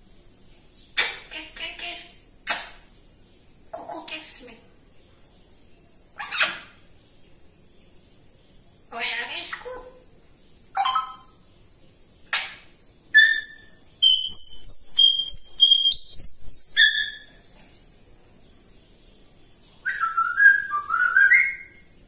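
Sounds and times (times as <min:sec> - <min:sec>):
parrot whistling: 0:10.8 - 0:11.3, 0:13.2 - 0:17.3, 0:19.9 - 0:21.8.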